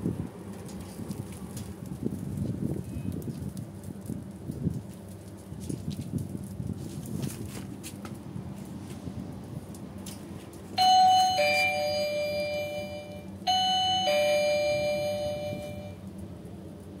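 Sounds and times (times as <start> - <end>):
two-tone doorbell chime: 10.8 - 16.0.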